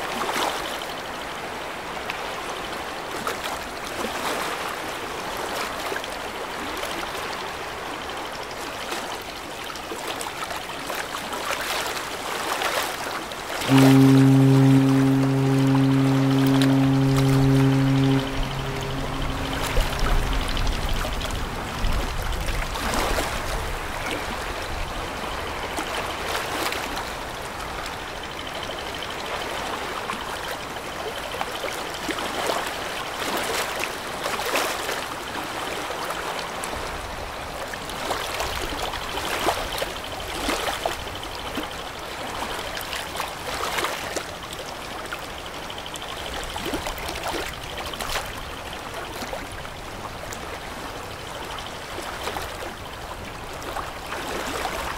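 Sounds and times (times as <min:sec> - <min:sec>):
water splashing against riverbank: 0:08.9 - 0:24.6.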